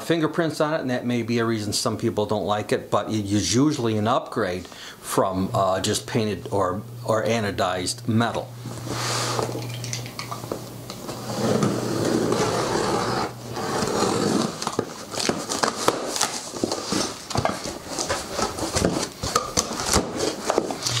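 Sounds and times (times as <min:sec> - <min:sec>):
packing tape ripping off box: 0:11.3 - 0:21.0
plastic wrap crackling: 0:13.4 - 0:21.0.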